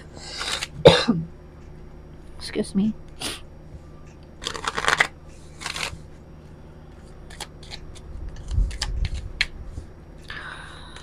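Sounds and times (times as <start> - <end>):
cards riffling: 0.3 - 0.8, 4.4 - 6.1, 7.2 - 9.6.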